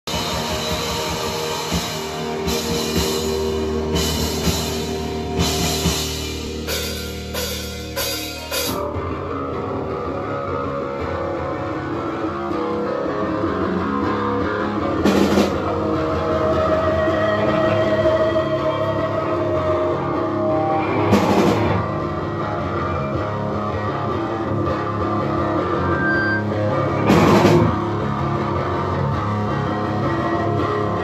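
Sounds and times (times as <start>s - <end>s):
electric guitar and bass: 0.0s - 31.0s
drum kit with crashing cymbals: 0.1s - 9.2s, 14.9s - 18.9s, 20.3s - 22.0s, 25.6s - 28.0s.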